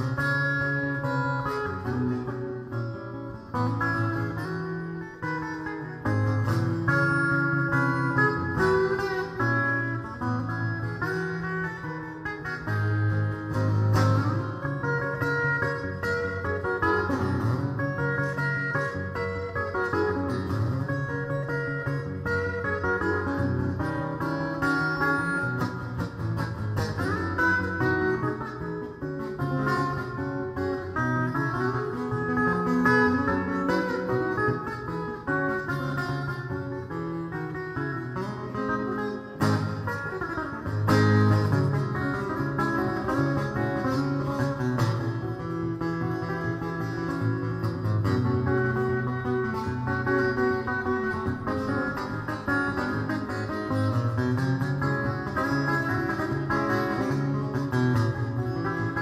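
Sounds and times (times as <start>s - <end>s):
fingerstyle acoustic guitar: 0.0s - 59.0s
percussive hit on guitar: 12.7s - 36.5s, 37.8s - 59.0s.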